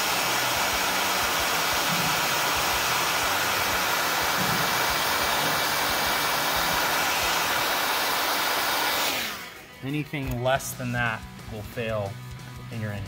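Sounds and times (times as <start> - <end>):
heat gun blowing: 0.0 - 9.7.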